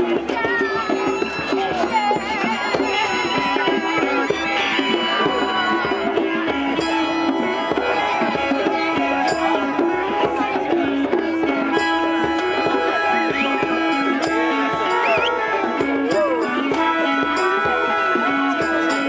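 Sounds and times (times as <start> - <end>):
hand drums beating: 0.0 - 19.0
repeating melodic phrase: 11.7 - 17.3.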